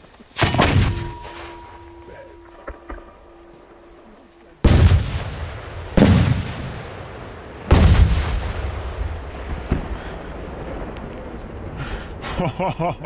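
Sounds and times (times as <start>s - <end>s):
rolling echo: 0.4s - 11.9s
firework bangs: 4.6s - 11.8s.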